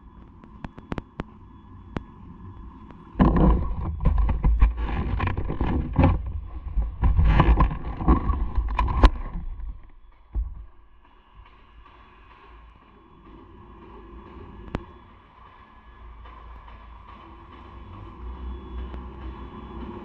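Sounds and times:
motorcycle rumble: 3.2 - 11.2.

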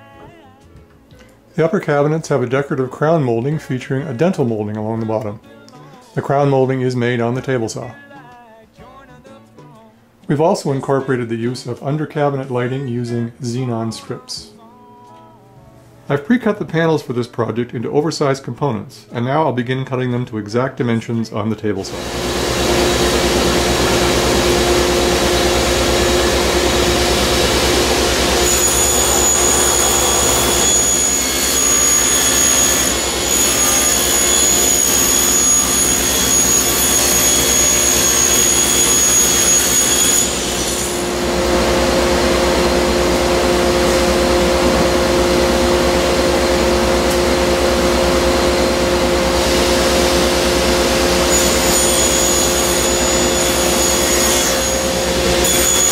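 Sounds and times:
high whine: 21.9 - 55.9
table saw running: 21.9 - 55.9.

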